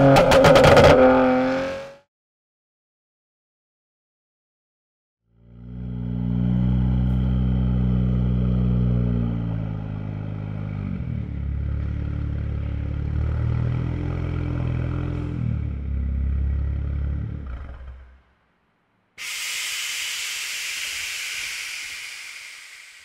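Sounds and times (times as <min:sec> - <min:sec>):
car engine idling: 0:19.3 - 0:23.0.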